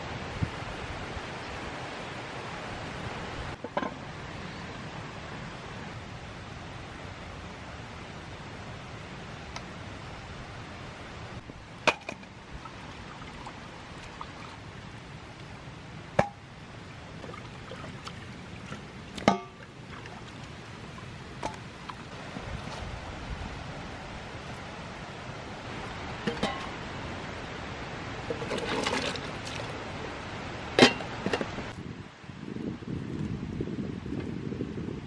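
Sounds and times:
steady background hiss: 0:00.0 - 0:32.9
metal pot and bowl clanking: 0:26.2 - 0:26.8, 0:28.3 - 0:29.3.

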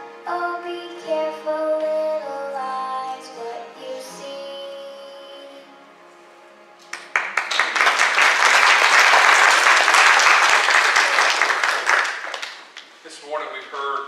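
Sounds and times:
congregation applauding: 0:06.8 - 0:13.0.

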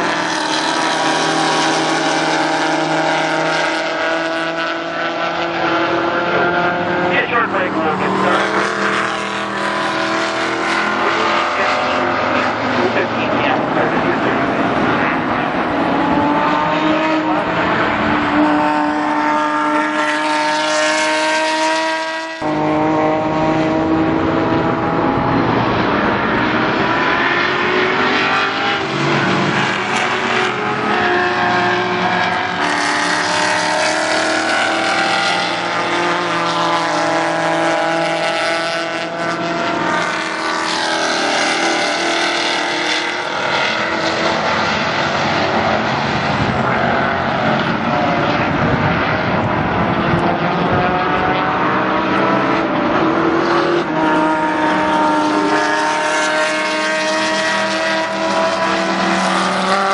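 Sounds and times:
race car engines passing: 0:00.0 - 0:59.9.

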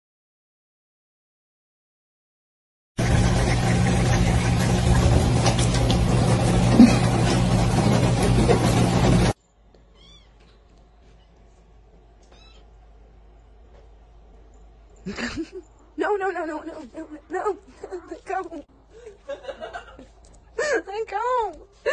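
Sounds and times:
water dispenser hum: 0:03.0 - 0:09.4
faint high squeaks: 0:09.9 - 0:11.5, 0:12.3 - 0:12.7.

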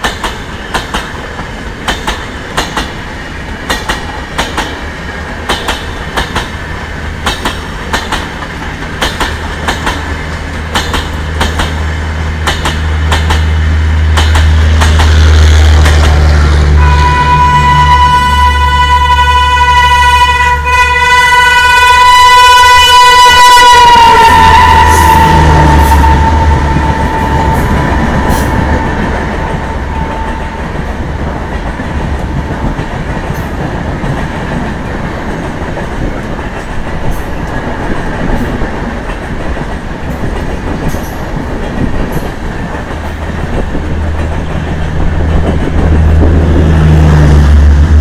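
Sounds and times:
locomotive horn: 0:15.1 - 0:30.8.

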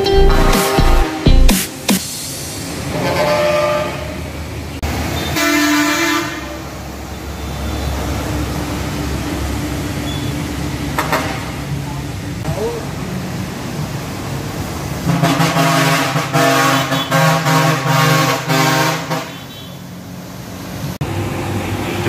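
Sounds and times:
horns honking: 0:00.0 - 0:02.0, 0:02.9 - 0:04.3, 0:05.1 - 0:08.1, 0:15.0 - 0:19.9
tyres hissing on wet road: 0:01.8 - 0:22.0
trucks rumbling past: 0:02.0 - 0:22.0.

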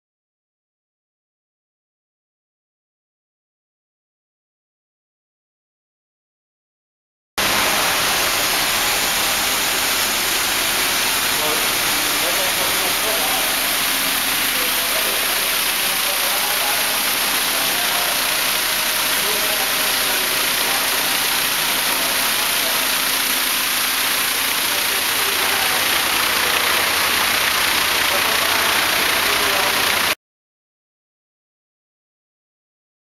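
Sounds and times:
mechanical motor hum: 0:07.4 - 0:30.2
water pouring and splashing: 0:07.4 - 0:30.2.

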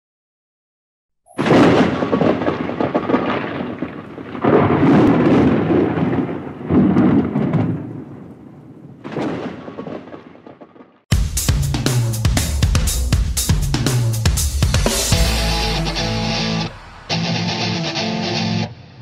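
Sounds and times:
rolling thunder: 0:01.4 - 0:11.0, 0:14.7 - 0:17.9.

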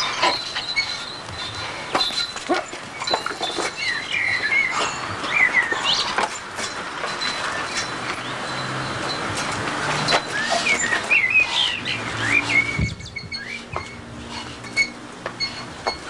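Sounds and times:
small birds chirping: 0:02.9 - 0:06.3, 0:10.3 - 0:14.0.

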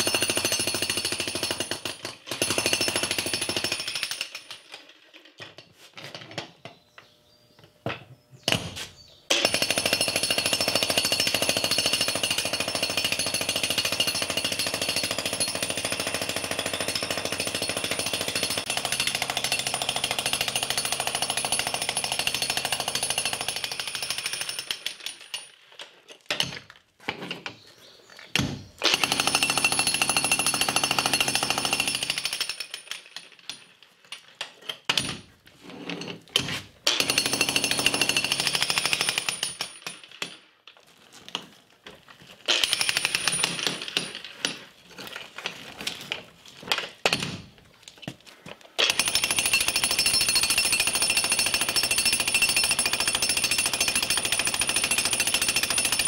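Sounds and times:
jackhammer breaking concrete: 0:00.0 - 0:04.7, 0:09.3 - 0:25.4, 0:28.8 - 0:33.2, 0:36.9 - 0:40.4, 0:42.5 - 0:44.6, 0:48.8 - 0:56.0.

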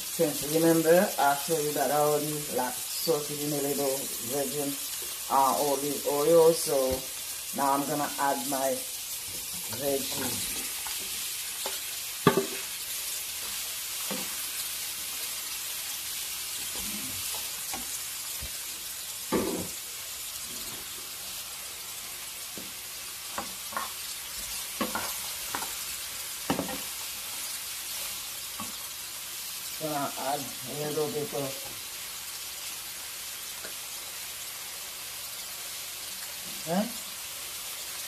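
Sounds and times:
vegetables sizzling in oil: 0:00.0 - 0:38.0
bowl and spatula knocking on pan: 0:12.2 - 0:12.6, 0:19.3 - 0:19.7
spatula stirring: 0:23.3 - 0:25.9.

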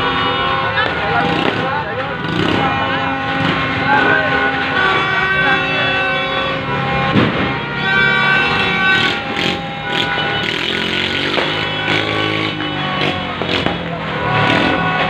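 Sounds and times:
crowd noise: 0:00.0 - 0:15.0
motorcycle engines running: 0:00.8 - 0:07.0, 0:07.9 - 0:15.0
sharp bang: 0:07.0 - 0:07.7.

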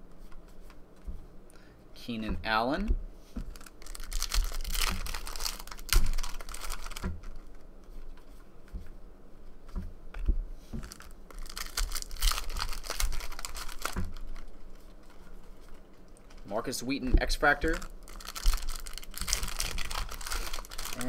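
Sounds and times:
foil wrapper crinkling and tearing: 0:03.5 - 0:07.6, 0:10.8 - 0:16.6, 0:17.3 - 0:21.0.

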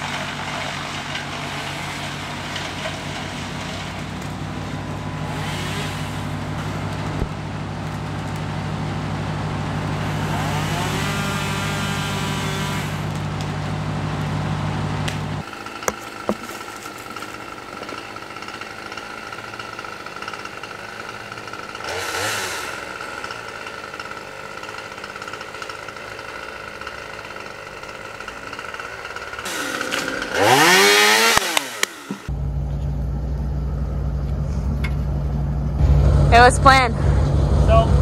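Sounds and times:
low engine rumble: 0:00.0 - 0:20.5, 0:32.2 - 0:38.0
chainsaw revving: 0:00.0 - 0:32.3.

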